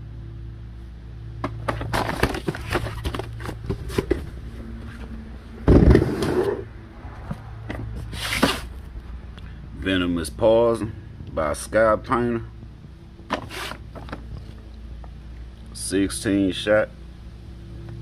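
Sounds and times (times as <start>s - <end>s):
steady low hum: 0.0s - 18.0s
cardboard boxes knocking and scraping: 1.4s - 6.6s
heavy thump of box set down: 5.6s - 6.6s
rustling scrape: 5.8s - 6.7s, 7.9s - 8.8s, 13.3s - 14.2s.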